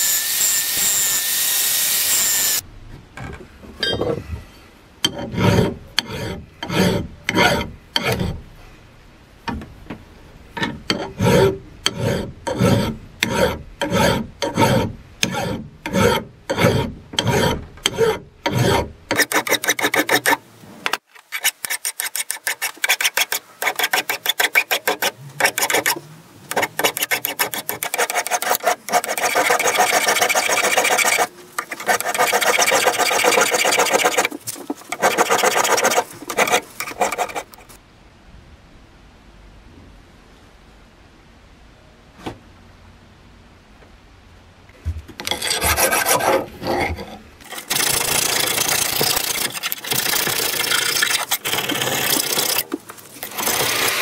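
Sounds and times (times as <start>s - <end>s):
file rasping on steel: 5.0s - 8.4s, 10.6s - 20.4s, 21.3s - 37.7s, 45.2s - 52.6s.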